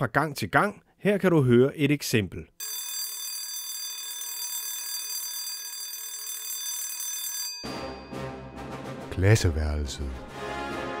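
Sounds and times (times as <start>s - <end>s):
electric school bell ringing: 2.6s - 8.5s
jingle music: 7.5s - 10.1s.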